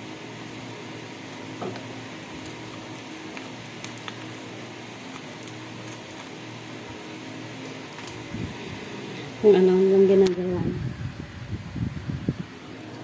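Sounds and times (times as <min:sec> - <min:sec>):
steady fan-like hum: 0:00.0 - 0:13.0
aluminium foil crinkling: 0:02.2 - 0:08.4.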